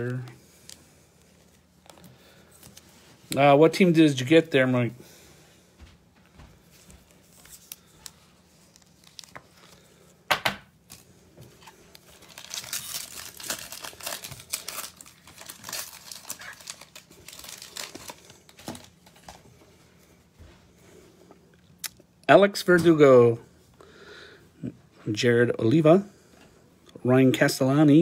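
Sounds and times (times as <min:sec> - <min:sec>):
foil wrapper crinkling: 0:06.8 - 0:10.0, 0:10.8 - 0:19.4
foil wrapper ripping: 0:11.8 - 0:19.3.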